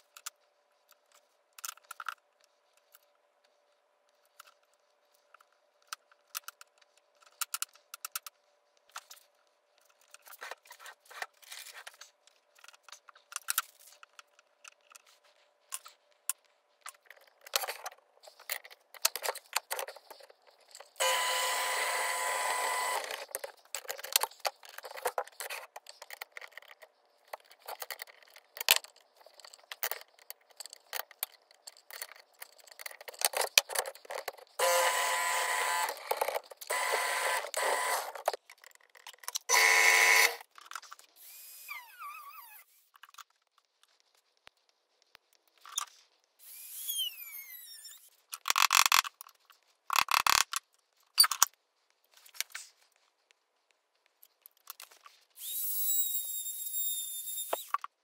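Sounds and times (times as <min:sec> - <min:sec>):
clicks taps and metal scrapes: 0:00.0 - 0:21.7, 0:22.5 - 0:41.2, 0:47.8 - 0:55.3
machine running: 0:21.0 - 0:23.5, 0:34.6 - 0:38.3.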